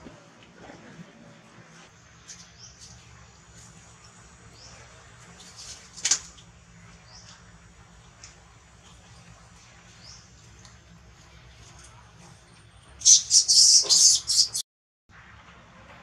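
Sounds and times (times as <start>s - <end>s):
baby monkey squeaking: 13.0s - 14.6s
monkey shrieking: 13.0s - 14.6s.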